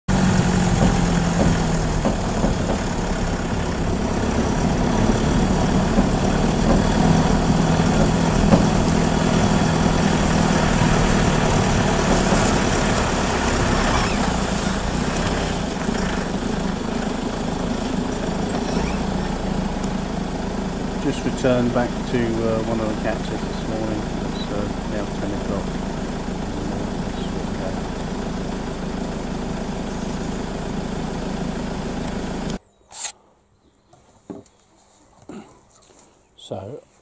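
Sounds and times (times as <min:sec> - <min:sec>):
vehicle engine low drone: 0:00.1 - 0:32.6.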